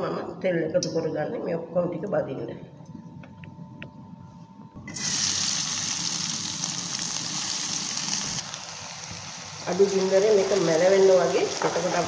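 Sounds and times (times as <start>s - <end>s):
onions sizzling in hot oil: 4.9s - 12.0s.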